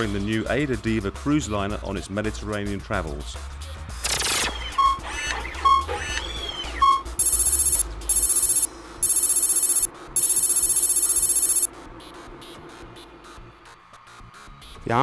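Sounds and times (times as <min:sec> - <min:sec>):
short electronic beep: 0:07.2 - 0:11.7.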